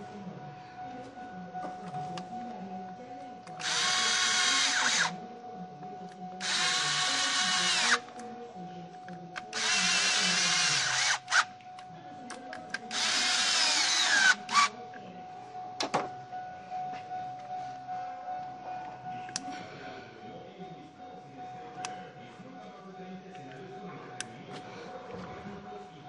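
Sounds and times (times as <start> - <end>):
cordless drill motor whine: 3.6 - 5.2, 6.4 - 8.0, 9.5 - 11.4, 12.9 - 14.7.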